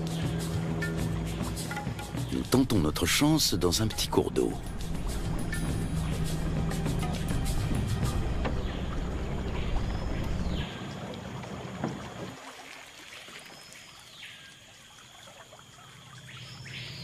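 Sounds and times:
boat motor rumble: 0.0 - 12.7
rainforest ambience: 0.0 - 17.0.

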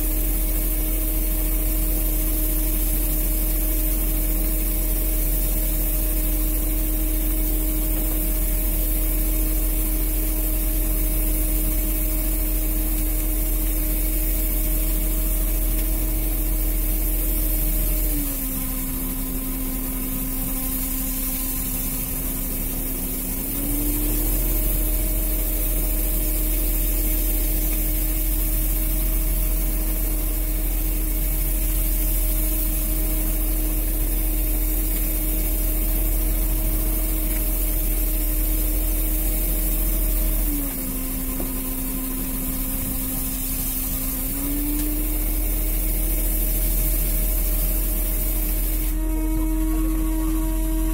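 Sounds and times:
boat engine droning: 3.5 - 50.9.

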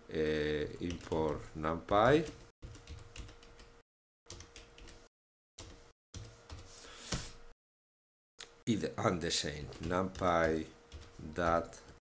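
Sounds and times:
faint electrical hum: 0.0 - 3.8, 8.4 - 12.0.

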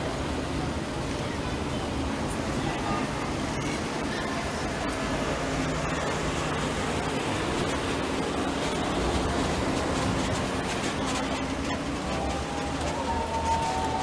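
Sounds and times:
tyres on cobblestones: 0.0 - 14.0
vehicle engines running at low speed: 0.0 - 14.0.

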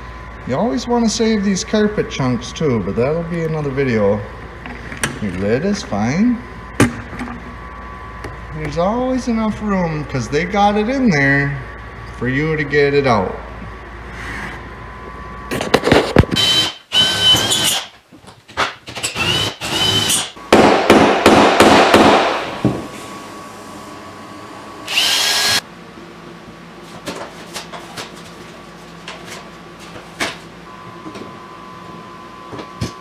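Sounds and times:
low machine hum with clicks: 0.0 - 16.5, 25.9 - 33.0
power drill whining: 16.4 - 17.9, 19.1 - 20.3, 24.9 - 25.6.

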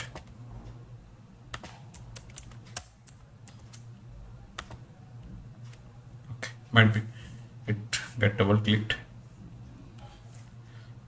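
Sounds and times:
low steady hum: 0.0 - 11.0
keyboard and mouse clicks: 1.5 - 3.9, 4.6 - 4.8.

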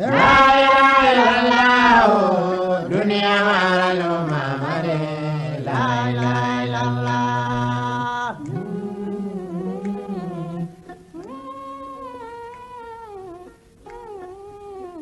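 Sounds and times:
man chanting: 0.0 - 11.0.

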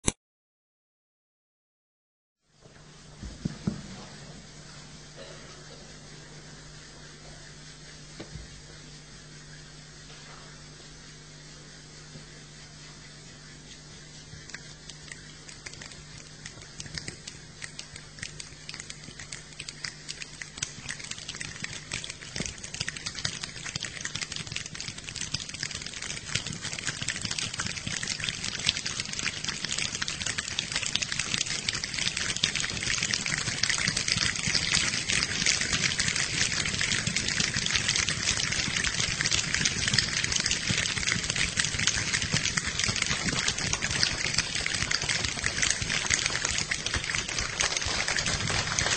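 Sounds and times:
finger snaps patter: 13.7 - 48.9.

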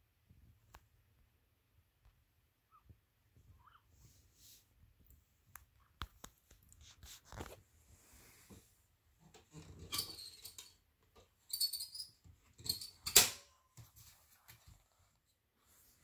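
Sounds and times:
kittens scuffling on blanket: 6.0 - 8.9, 13.8 - 16.0.

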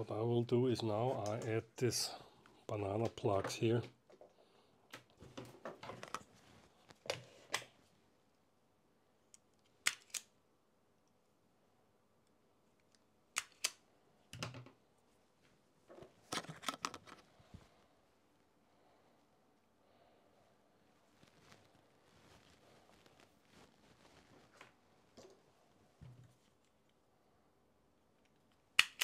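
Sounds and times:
tools being handled: 15.9 - 17.2.

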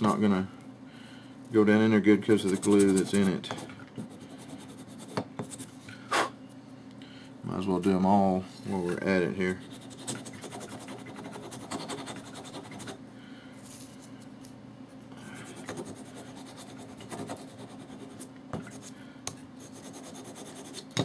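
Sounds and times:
sanding block rasping on wood: 19.8 - 20.8.

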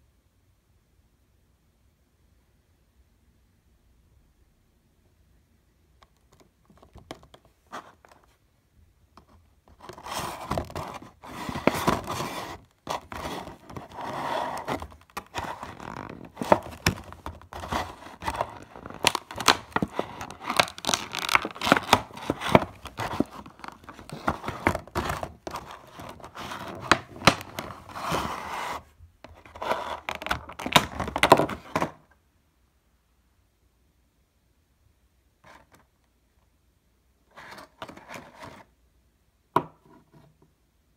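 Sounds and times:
plastic packaging crinkling: 9.8 - 28.3.

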